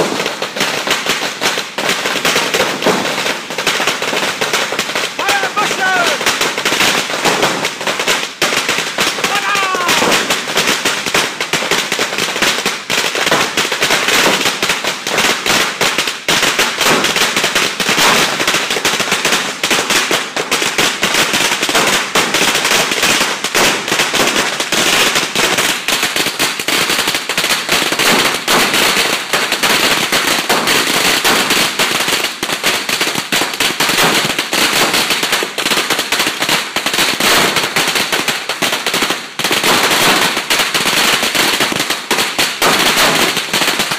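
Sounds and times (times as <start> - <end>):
firecrackers crackling: 0.0 - 43.9.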